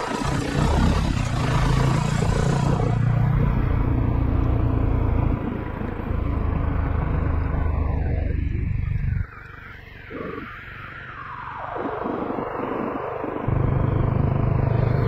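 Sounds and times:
motorcycle engine running: 0:00.0 - 0:08.1, 0:13.5 - 0:15.0
wind rush: 0:00.0 - 0:15.0.

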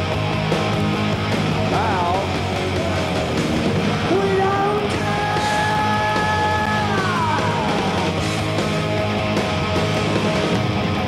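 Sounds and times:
drums: 0:00.0 - 0:11.0
electric guitars: 0:00.0 - 0:11.0
shouted lead vocal: 0:01.6 - 0:03.2, 0:03.9 - 0:08.4.

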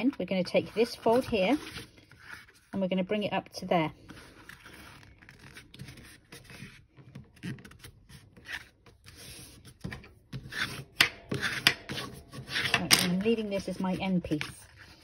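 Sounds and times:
paper rustling while folded: 0:04.0 - 0:09.9.

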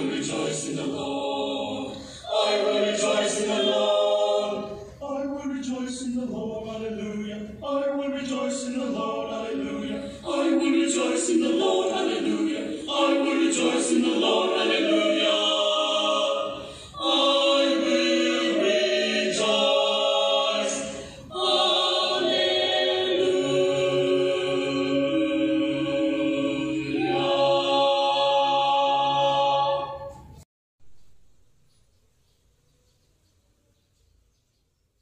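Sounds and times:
choir breaths: 0:00.0 - 0:05.0, 0:09.8 - 0:30.4
mixed choir singing: 0:00.0 - 0:30.4.

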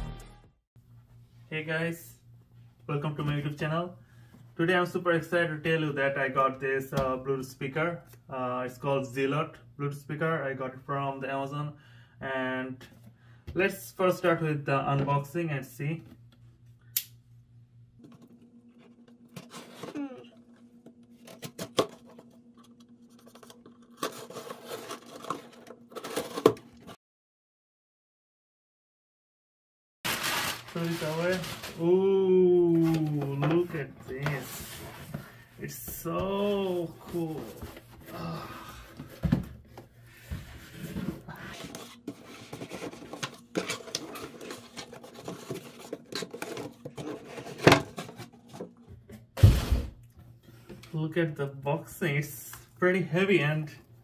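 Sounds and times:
packaging tearing and rustling: 0:23.2 - 0:26.8, 0:30.1 - 0:32.1
packaging rustling: 0:30.1 - 0:33.4.

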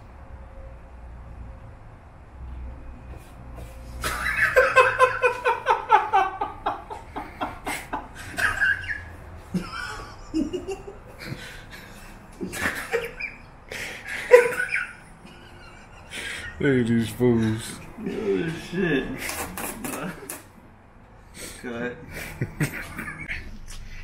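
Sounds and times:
men laughing: 0:04.0 - 0:20.3, 0:22.1 - 0:23.6.

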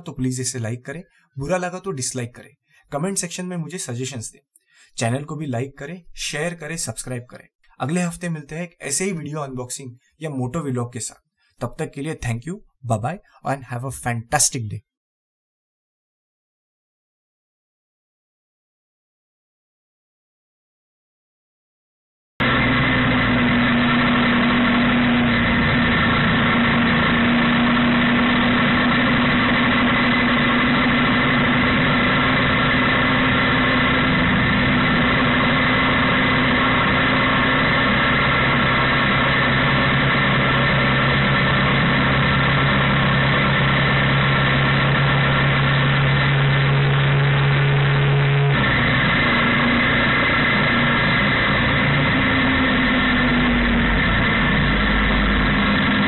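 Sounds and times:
motorcycle engine running: 0:22.4 - 0:56.0.

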